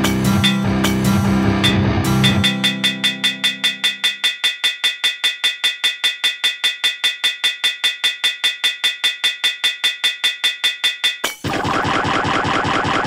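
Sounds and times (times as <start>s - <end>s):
low guitar notes: 0.0s - 3.2s.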